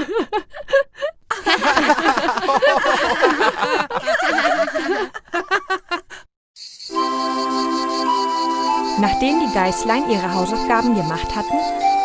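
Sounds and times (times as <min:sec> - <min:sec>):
cartoon voices laughing: 0:01.3 - 0:06.2.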